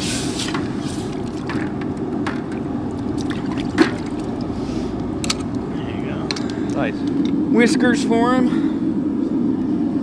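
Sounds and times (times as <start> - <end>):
water bubbling and trickling: 1.0 - 5.6.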